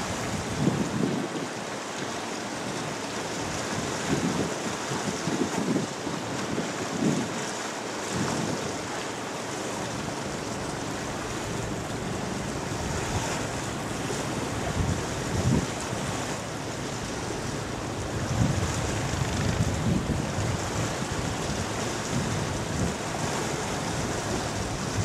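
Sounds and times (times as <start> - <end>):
river water rushing: 0.0 - 25.0
wind buffeting microphone: 8.1 - 25.0.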